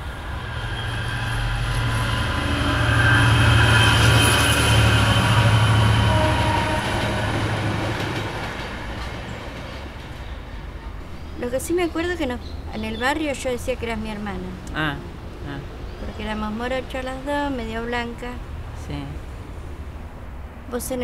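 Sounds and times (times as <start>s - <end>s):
high whine of train wheels: 0.0s - 11.4s
train rumbling past: 0.0s - 21.0s.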